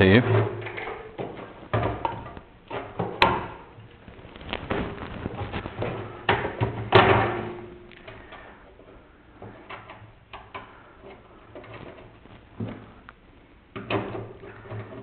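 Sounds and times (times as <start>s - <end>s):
clicks and knocks of parts handled: 7.9s - 13.2s.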